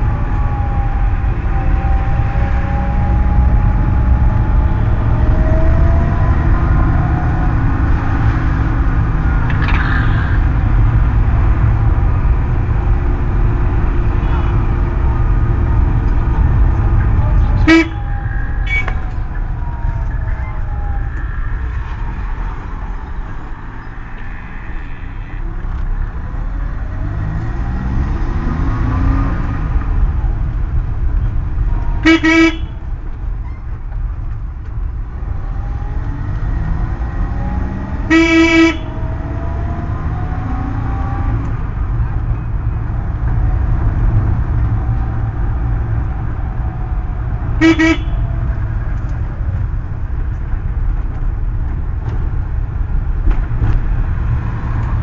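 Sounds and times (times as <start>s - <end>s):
moving vehicle engine rumble: 0.0s - 55.0s
vehicle horn honking: 17.4s - 19.0s, 32.0s - 32.8s, 38.1s - 39.0s, 47.6s - 48.3s.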